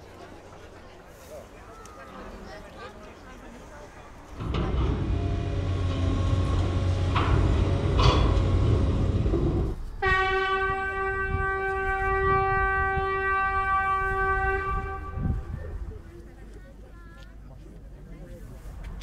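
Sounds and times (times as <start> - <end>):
low rumble: 4.3 - 16.0
long horn note: 4.4 - 15.6.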